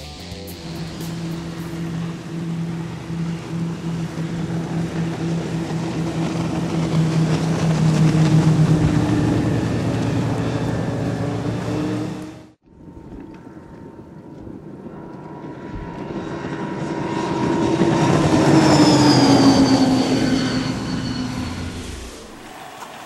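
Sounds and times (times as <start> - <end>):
powerboat engine drone: 0.0 - 22.4
water hissing from hull: 0.4 - 3.5.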